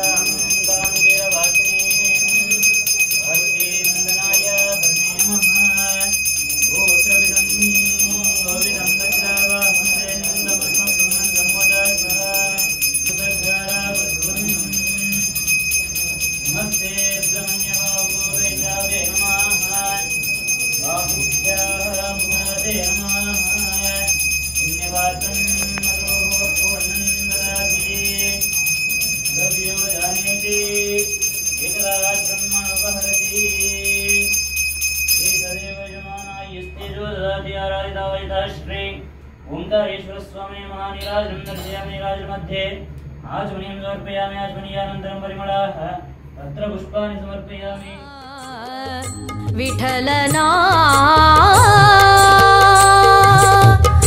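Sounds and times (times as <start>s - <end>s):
temple bell ringing: 0.0s - 37.0s, 41.0s - 41.8s
devotional music or chanting: 0.0s - 54.0s.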